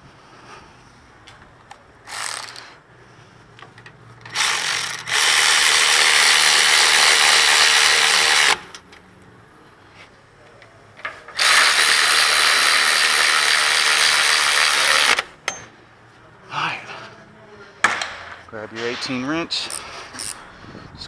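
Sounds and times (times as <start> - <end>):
electric ratchet spinning: 2.0 - 2.8, 4.3 - 8.7, 11.4 - 15.3.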